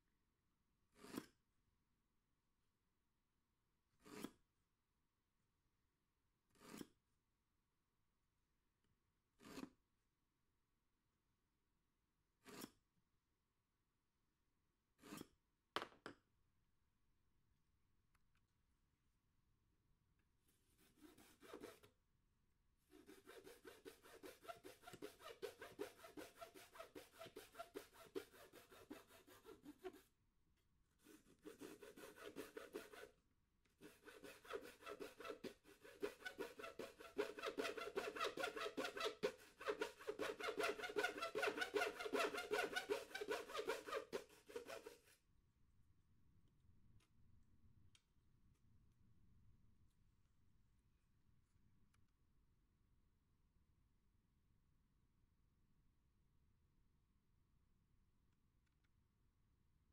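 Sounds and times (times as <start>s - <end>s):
hacksaw cutting board: 1.0s - 1.4s, 4.0s - 4.4s, 6.5s - 7.0s, 9.4s - 9.7s, 12.4s - 12.8s, 15.0s - 15.4s, 20.8s - 21.9s, 22.9s - 30.1s, 31.0s - 33.1s, 33.8s - 45.2s.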